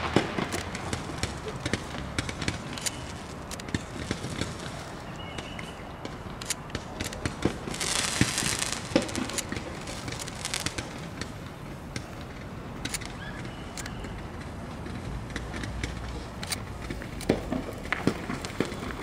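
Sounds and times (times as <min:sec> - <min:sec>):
fireworks popping and crackling: 0:00.0 - 0:19.0
firework shell hiss: 0:07.0 - 0:11.4.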